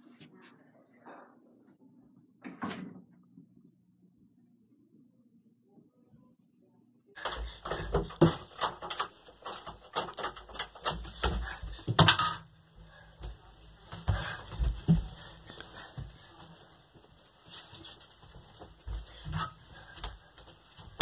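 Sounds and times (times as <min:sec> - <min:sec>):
knocking and rattling at wooden door: 0:07.2 - 0:12.5.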